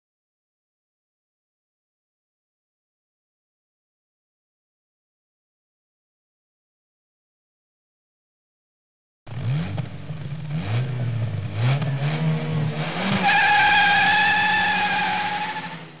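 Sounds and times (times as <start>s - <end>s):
car engine revving: 9.3s - 16.0s
tyre squeal: 13.1s - 16.0s.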